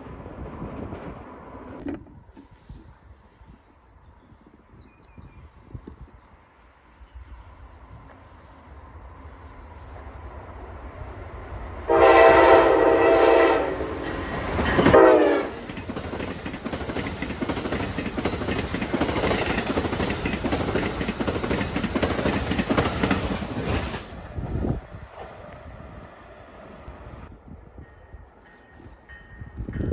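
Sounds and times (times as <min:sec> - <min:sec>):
train horn blasts: 0:11.9 - 0:14.2, 0:14.8 - 0:15.6
train wheels clattering on rails: 0:14.0 - 0:24.2.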